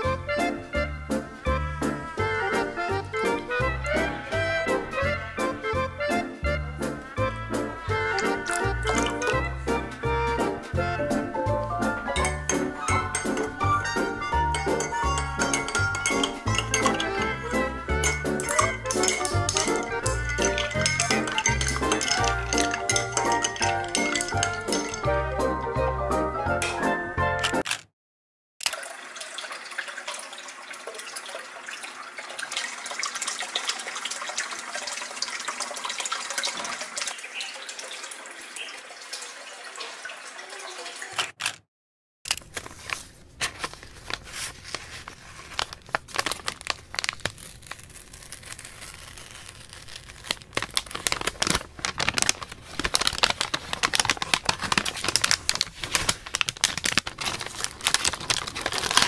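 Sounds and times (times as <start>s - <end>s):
plastic sleeve crackling: 8.0s - 9.5s, 18.1s - 25.0s, 42.3s - 59.0s
paper rustling and crinkling: 8.1s - 10.0s, 18.1s - 25.0s, 42.3s - 59.0s
aquarium water bubbling: 28.8s - 41.1s.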